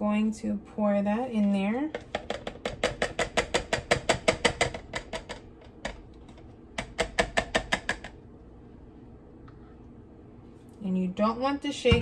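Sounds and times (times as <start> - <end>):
blender jar tapping on cup: 1.9 - 6.0, 6.8 - 8.2.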